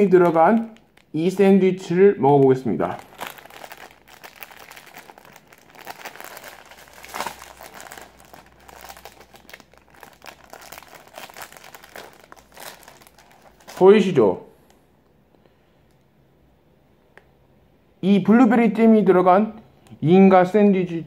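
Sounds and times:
plastic wrapper ripping: 0:00.0 - 0:01.6, 0:02.4 - 0:14.2
plastic wrapper crinkling: 0:00.0 - 0:14.2.

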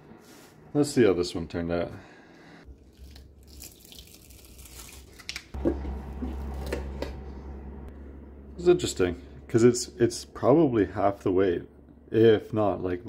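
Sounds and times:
steady hum: 0:05.6 - 0:13.0.

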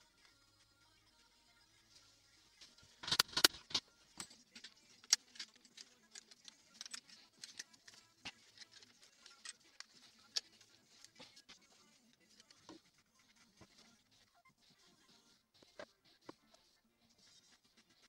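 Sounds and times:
metal clamps clicking: 0:03.0 - 0:09.6.

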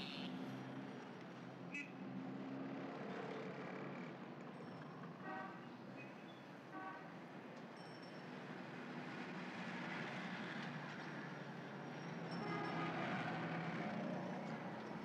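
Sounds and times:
street traffic rumbling: 0:08.7 - 0:15.0.

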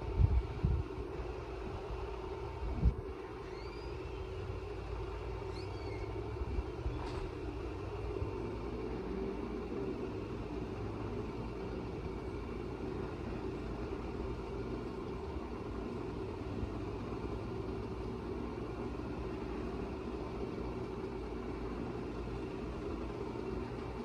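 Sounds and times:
electric motors humming: 0:00.0 - 0:24.0.

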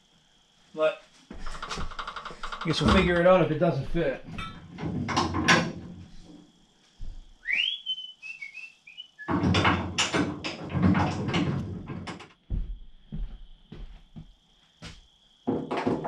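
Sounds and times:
clattering and handling noise: 0:01.3 - 0:03.5, 0:04.2 - 0:07.2, 0:09.2 - 0:12.4
whistle: 0:07.4 - 0:09.4.

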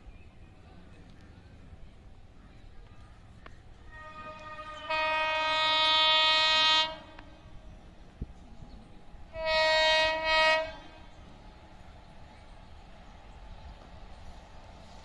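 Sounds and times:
distant train hum: 0:00.0 - 0:15.0
train air horn blasts: 0:03.9 - 0:07.5, 0:09.3 - 0:11.3.

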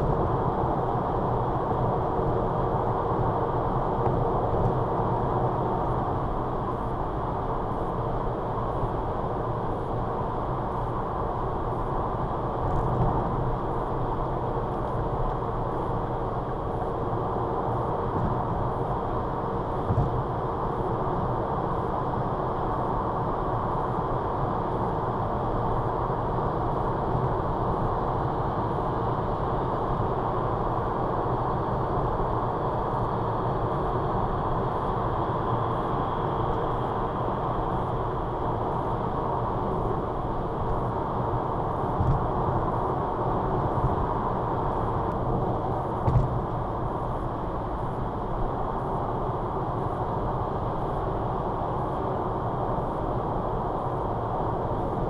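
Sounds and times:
car engine hum: 0:00.0 - 0:55.0
tyre and road noise: 0:41.8 - 0:47.1.

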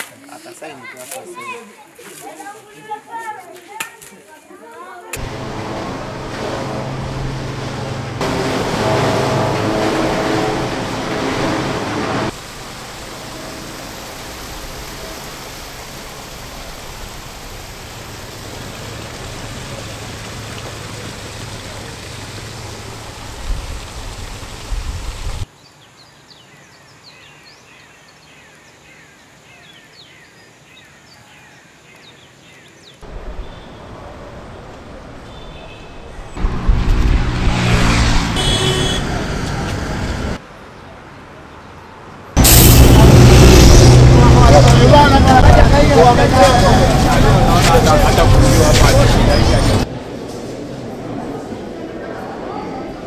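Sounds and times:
even rushing noise: 0:05.2 - 0:20.4, 0:42.4 - 0:52.4
machine humming: 0:05.2 - 0:21.5.

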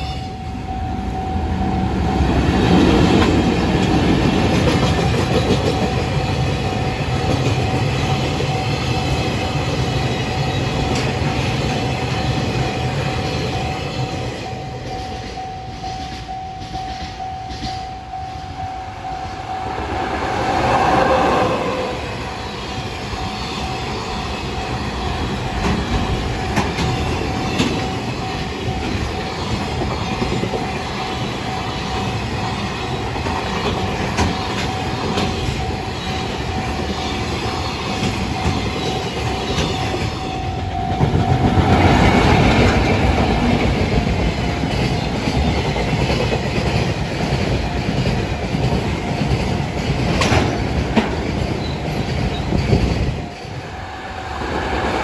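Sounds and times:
train wheels clattering on rails: 0:02.4 - 0:18.2, 0:19.7 - 0:55.0
level crossing alarm: 0:14.3 - 0:21.8, 0:37.5 - 0:42.7.

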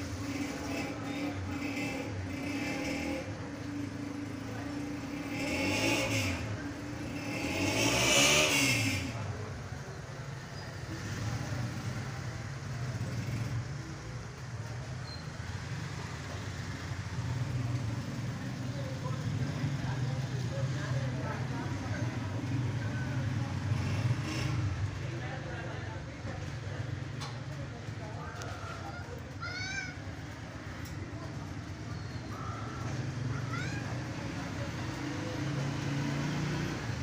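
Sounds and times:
motor vehicle passing: 0:00.0 - 0:09.8, 0:28.4 - 0:37.0.

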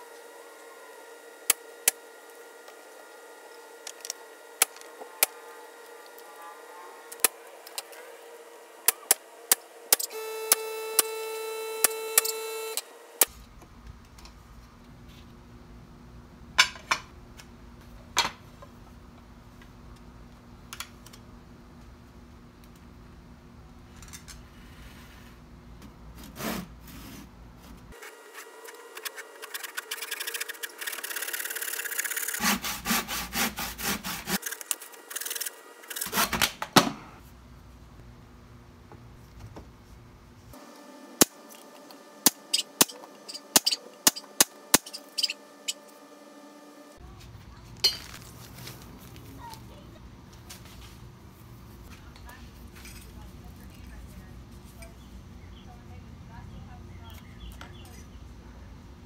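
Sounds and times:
steady hum: 0:27.4 - 0:47.2.

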